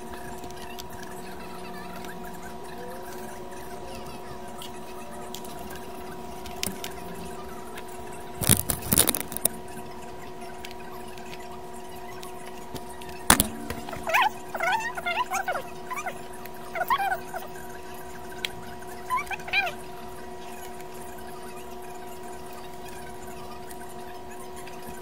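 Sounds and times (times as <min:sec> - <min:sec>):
steady tonal hum: 0:00.0 - 0:25.0
clicks and rattles of handling: 0:04.6 - 0:09.6
squeaky animal calls: 0:13.3 - 0:20.7.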